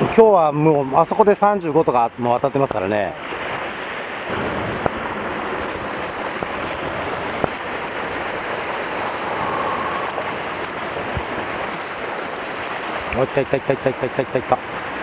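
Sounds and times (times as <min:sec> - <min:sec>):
waves washing on rocks: 0:02.8 - 0:15.0
wind on microphone: 0:04.3 - 0:13.2.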